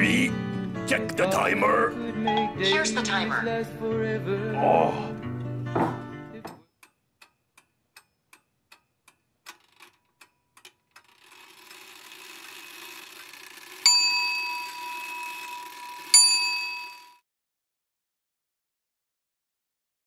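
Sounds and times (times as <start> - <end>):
clock-like ticking: 6.8 - 17.1
bell dinging: 13.8 - 17.2.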